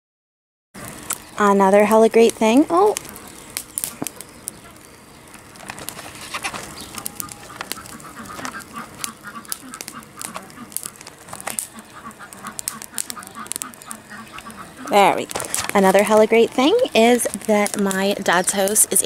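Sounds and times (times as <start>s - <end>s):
wood fire crackling and popping: 0.8s - 19.0s
ducks quacking: 6.7s - 16.3s.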